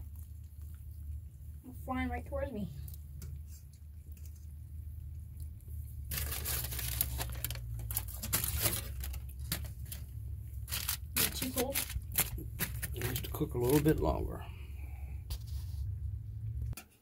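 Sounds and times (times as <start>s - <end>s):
low steady hum: 0.0s - 16.8s
aluminium foil crinkling: 6.0s - 14.2s.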